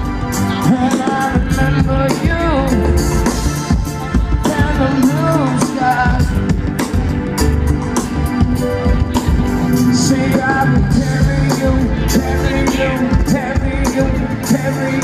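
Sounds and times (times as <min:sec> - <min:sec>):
person singing: 0:00.0 - 0:07.6, 0:09.2 - 0:15.0
bass: 0:00.0 - 0:15.0
live band playing amplified music: 0:00.0 - 0:15.0.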